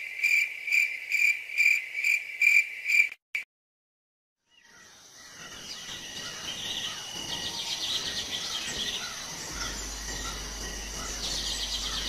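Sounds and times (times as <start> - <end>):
bird chirps: 4.4 - 12.0
high-pitched insect drone: 5.4 - 12.0.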